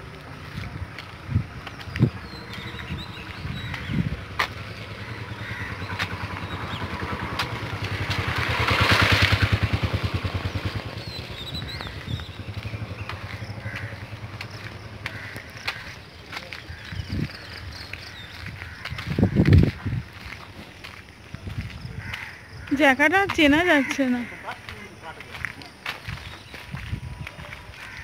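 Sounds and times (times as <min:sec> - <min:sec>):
vehicle engine passing by: 0:02.2 - 0:15.4.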